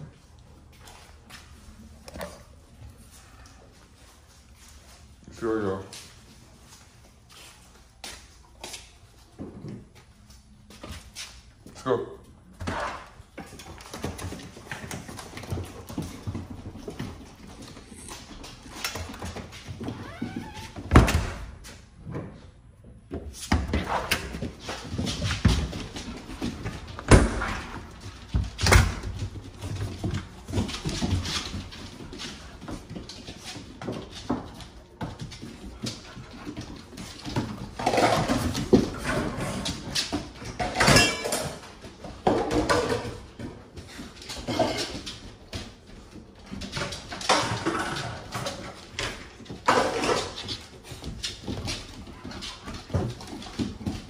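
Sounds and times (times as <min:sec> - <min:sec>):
dogs moving about: 0:23.7 - 0:54.0.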